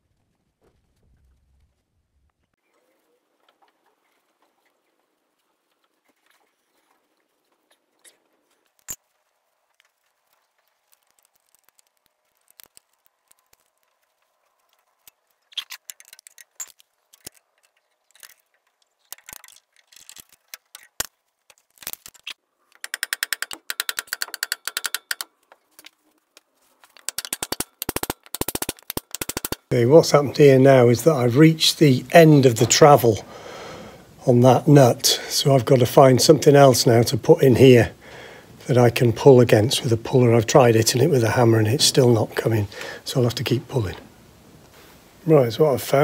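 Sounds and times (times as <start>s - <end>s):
metal clicks and taps: 22.7s - 25.9s, 26.9s - 29.7s
fast ticking: 27.0s - 29.8s.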